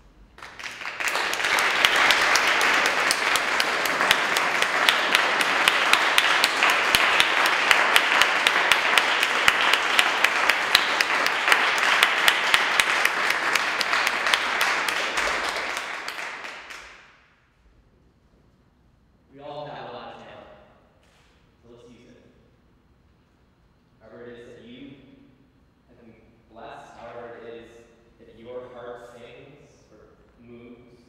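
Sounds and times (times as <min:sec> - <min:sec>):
audience applauding: 0:00.4 - 0:17.1.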